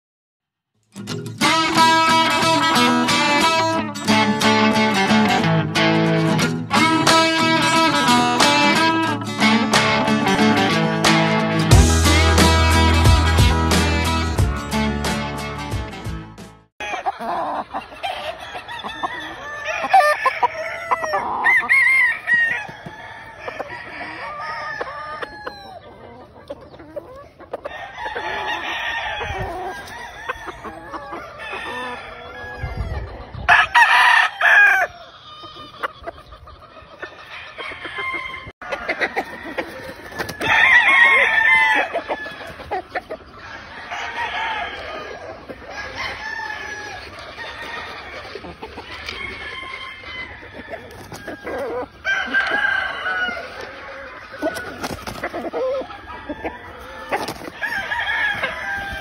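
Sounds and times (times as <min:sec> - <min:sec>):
hens clucking: 0:01.4 - 0:11.8, 0:16.8 - 0:59.0
roosters crowing: 0:16.8 - 0:59.0.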